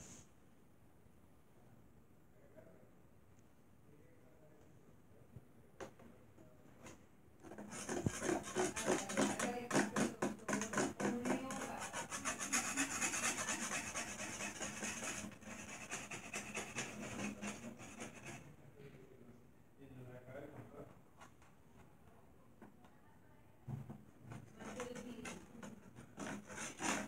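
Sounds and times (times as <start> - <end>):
scratching and rubbing on microphone: 7.5 - 18.4, 24.4 - 27.0.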